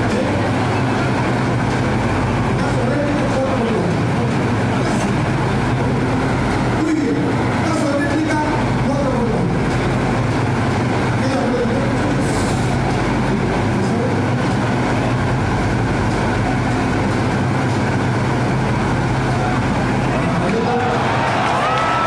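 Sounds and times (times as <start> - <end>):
crowd voices din: 9.6 - 22.0.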